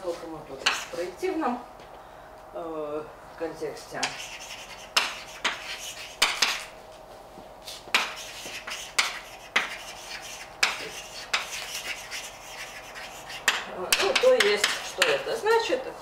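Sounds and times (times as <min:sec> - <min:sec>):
chalk tapping on board: 0:00.6 - 0:00.9, 0:04.0 - 0:06.7, 0:07.9 - 0:15.2
chalk scratching on blackboard: 0:00.6 - 0:01.1, 0:04.0 - 0:06.7, 0:07.7 - 0:15.3.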